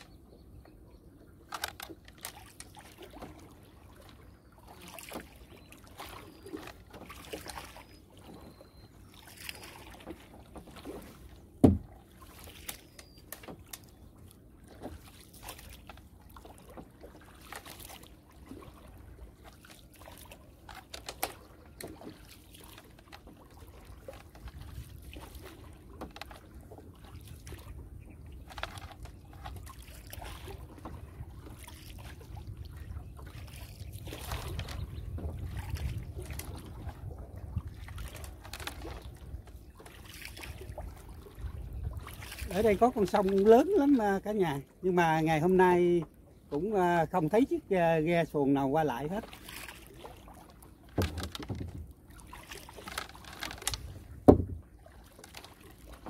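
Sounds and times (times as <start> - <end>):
water trickling and splashing: 1.2 - 56.0
light knocks on boat: 10.0 - 12.0, 50.8 - 52.0, 53.0 - 54.8.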